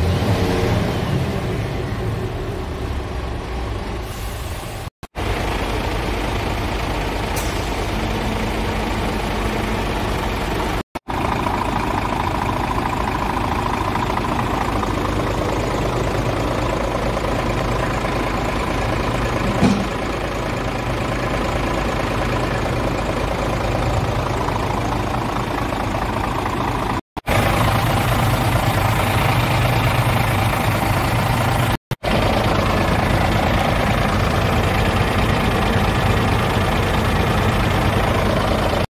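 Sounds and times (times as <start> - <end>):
truck diesel engine idling: 1.1 - 38.9.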